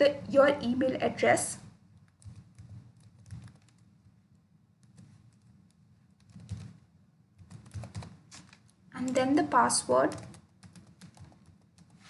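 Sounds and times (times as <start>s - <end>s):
keystrokes on computer keyboard: 1.9s - 4.2s, 4.8s - 12.0s.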